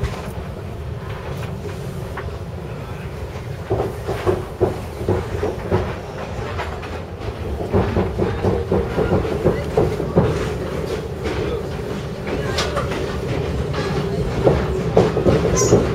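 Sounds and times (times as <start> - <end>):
knocks and rattles: 3.6 - 15.9.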